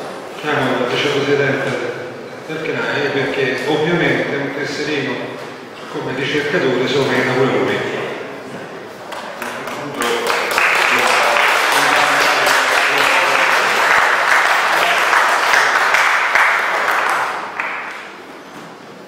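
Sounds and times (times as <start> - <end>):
audience applauding: 9.1 - 18.3.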